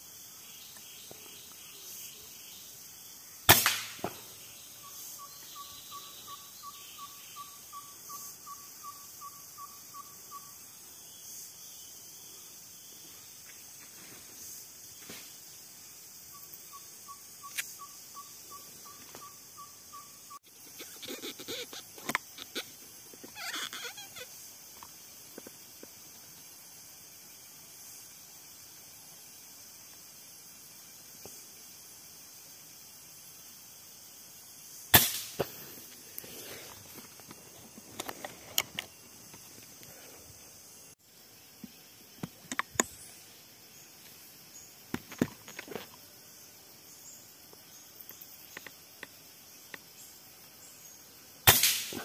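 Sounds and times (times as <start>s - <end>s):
faint forest background: 0.0s - 52.0s
air rifle shot crack: 3.5s - 4.2s, 35.0s - 35.5s, 51.5s - 52.0s.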